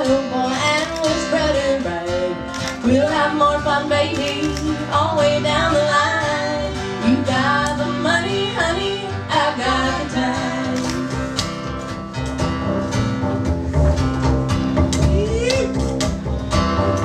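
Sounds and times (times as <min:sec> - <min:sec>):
women singing duet: 0:00.0 - 0:11.3
plucked upright bass: 0:00.0 - 0:17.0
strummed acoustic guitar: 0:00.0 - 0:17.0.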